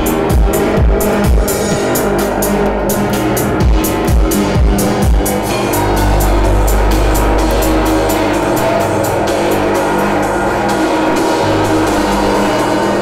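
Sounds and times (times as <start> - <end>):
techno dance music: 4.0 - 9.3.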